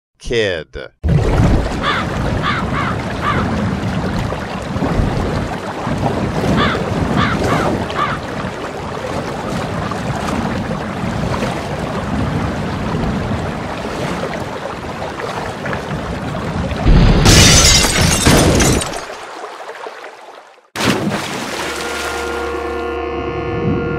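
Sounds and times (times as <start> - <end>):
ocean surf: 1.6 - 17.1.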